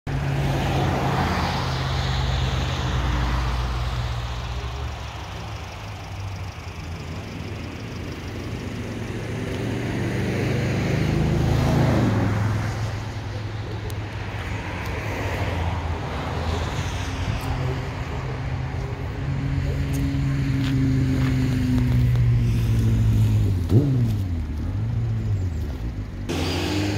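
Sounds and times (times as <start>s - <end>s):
vehicles going by: 0.0s - 26.9s.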